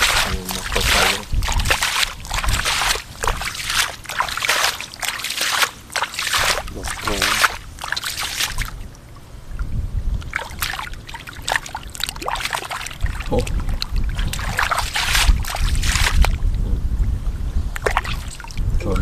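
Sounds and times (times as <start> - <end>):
steady low rumble: 0.0 - 5.0
water splashing and sloshing: 0.0 - 16.6, 17.7 - 19.0.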